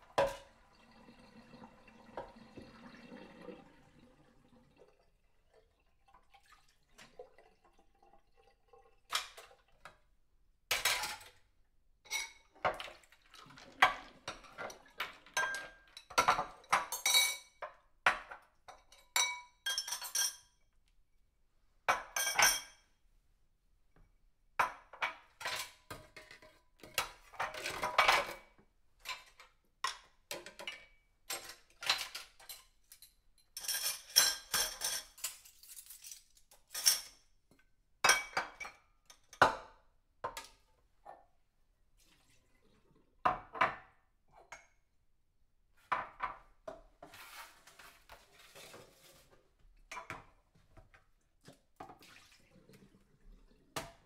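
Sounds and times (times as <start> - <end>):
dishes and cutlery clinking: 12.0 - 12.9, 13.8 - 20.6, 21.9 - 22.9, 24.7 - 37.3.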